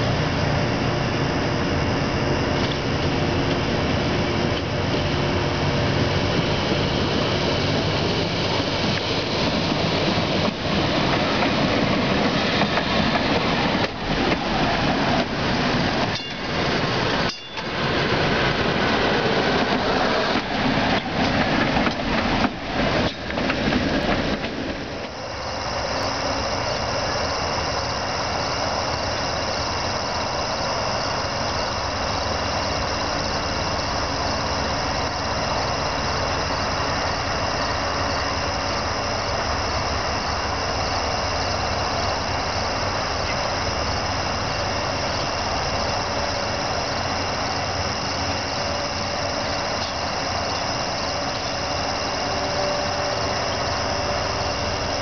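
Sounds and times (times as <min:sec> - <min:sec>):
streetcar rattling over rails: 0:00.0 - 0:55.0
hiss: 0:24.8 - 0:55.0.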